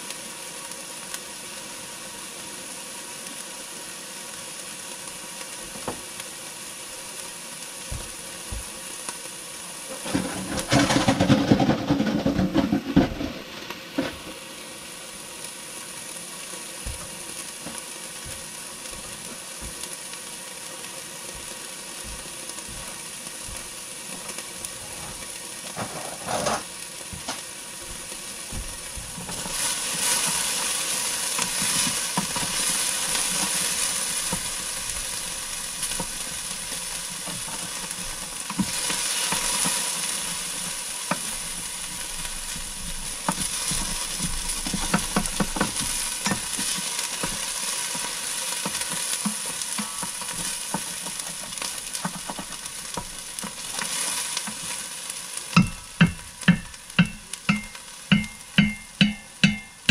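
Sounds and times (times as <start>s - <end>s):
food sizzling in a pot: 0.0s - 59.9s
utensil scraping and clicking pot: 25.7s - 26.7s, 48.6s - 54.7s, 55.6s - 59.9s.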